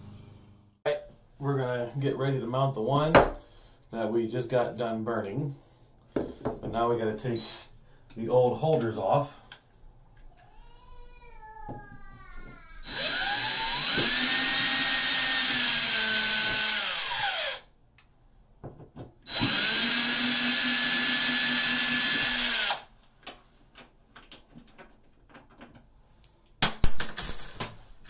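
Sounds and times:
cordless drill motor whine: 12.8s - 17.6s, 19.3s - 22.8s.

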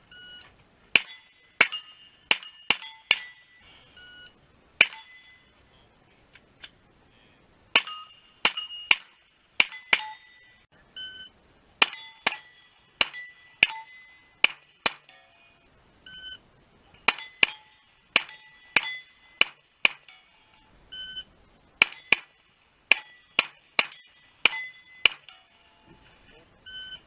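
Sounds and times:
shot timer beeping: 0.1s - 5.5s, 7.8s - 16.4s, 17.1s - 22.3s, 26.6s - 27.0s
steel plates ringing: 0.9s - 5.7s, 7.7s - 10.7s, 11.8s - 15.8s, 17.0s - 20.8s, 21.8s - 26.3s.

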